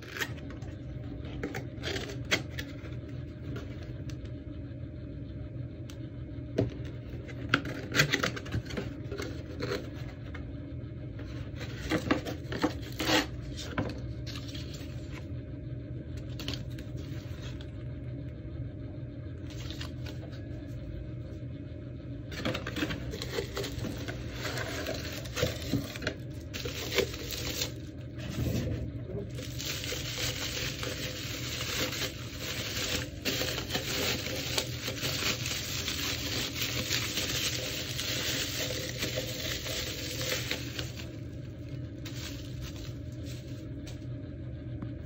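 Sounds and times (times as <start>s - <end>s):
bubble wrap crinkling: 22.4s - 28.3s, 29.3s - 43.8s.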